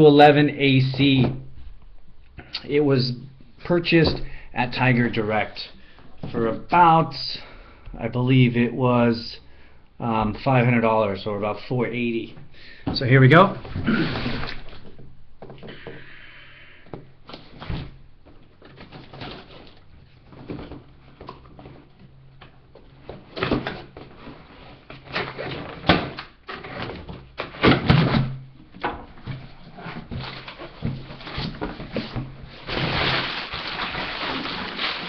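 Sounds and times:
faint steady hum: 0.0 - 35.0
cardboard box handled and opened: 29.2 - 35.0.

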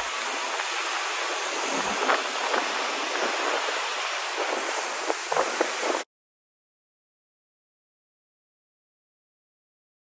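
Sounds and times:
wind buffeting microphone: 0.0 - 6.0
wind rushing: 0.0 - 6.0
churning wake water: 0.0 - 6.1.

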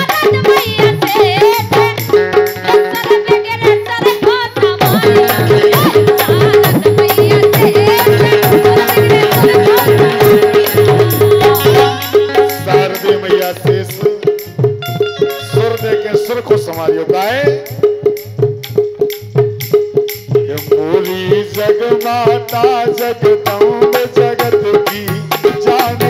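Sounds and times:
drum strokes: 0.0 - 26.0
wavering melody: 14.7 - 16.7.

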